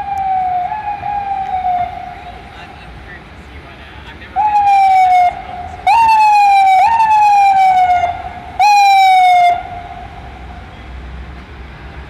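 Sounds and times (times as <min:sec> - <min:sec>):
ambulance siren bursts: 0:00.0 - 0:02.9, 0:04.3 - 0:11.0
low street traffic rumble: 0:00.0 - 0:12.0.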